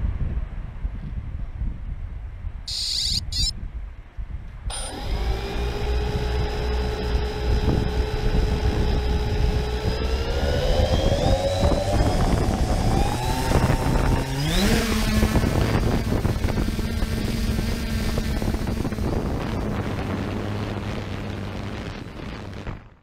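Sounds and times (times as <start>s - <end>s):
wind buffeting microphone: 0.0s - 23.0s
quadcopter propellers whining: 2.7s - 3.5s, 4.7s - 22.9s
short high-pitched burst: 2.7s - 3.5s.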